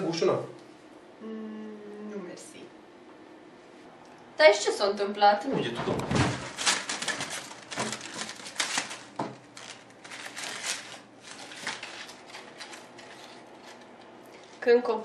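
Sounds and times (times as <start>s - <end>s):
paper crinkling: 6.1s - 14.6s.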